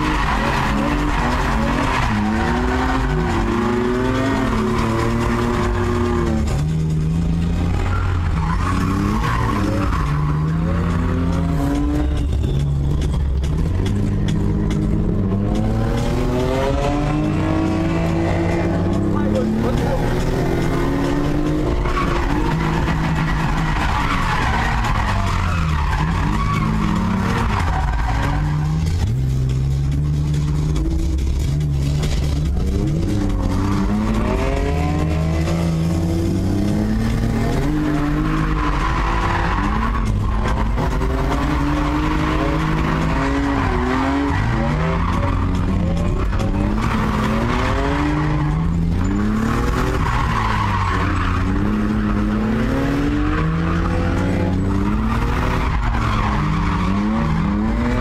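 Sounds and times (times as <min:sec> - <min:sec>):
car engine revving: 0:00.0 - 0:58.0
tyre squeal: 0:07.6 - 0:15.4, 0:19.8 - 0:29.1, 0:33.1 - 0:58.0.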